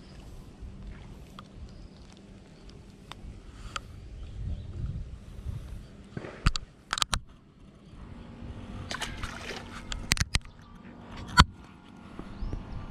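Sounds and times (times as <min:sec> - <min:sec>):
fish splashing into water: 0:08.9 - 0:09.9.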